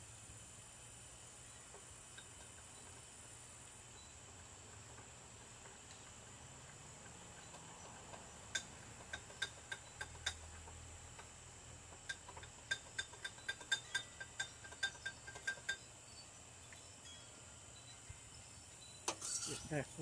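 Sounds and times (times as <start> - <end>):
night insects droning: 0.0 - 20.0
metal or glass clinks: 18.8 - 19.9.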